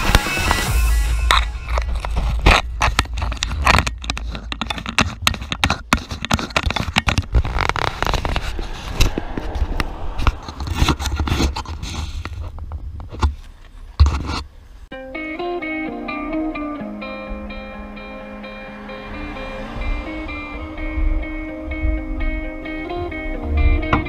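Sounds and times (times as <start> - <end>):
fingers handling a camera: 1.3 - 9.3.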